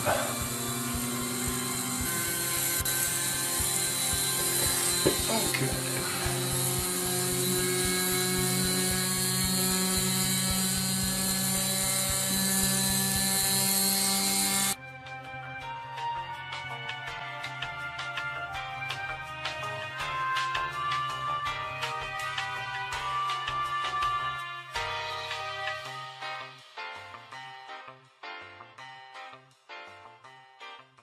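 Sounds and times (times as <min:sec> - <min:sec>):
electric motor whirring: 0:00.0 - 0:14.8
rapid irregular ticking: 0:00.4 - 0:14.8.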